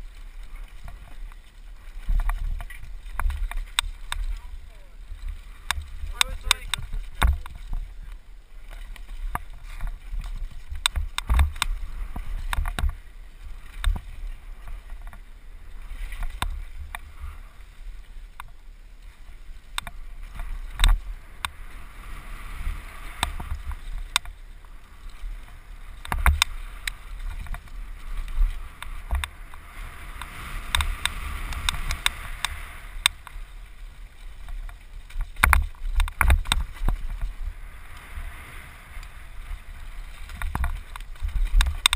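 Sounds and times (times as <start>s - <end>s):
wind rumble on microphone: 0.0s - 41.9s
bike knocks and rattles: 8.7s - 13.0s, 25.4s - 26.5s, 34.5s - 37.3s.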